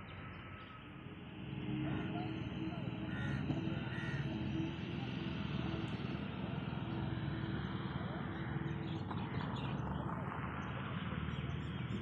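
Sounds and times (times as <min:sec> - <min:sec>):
outdoor background noise: 0:00.0 - 0:12.0
crows cawing: 0:03.0 - 0:04.6.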